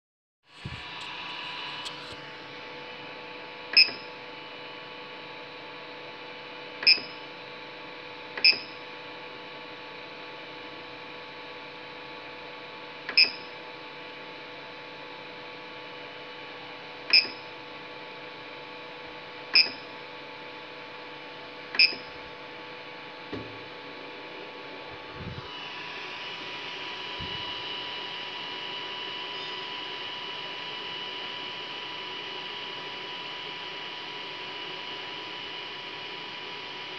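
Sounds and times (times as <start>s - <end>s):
cooling fans humming: 0.5s - 5.6s, 19.9s - 36.9s.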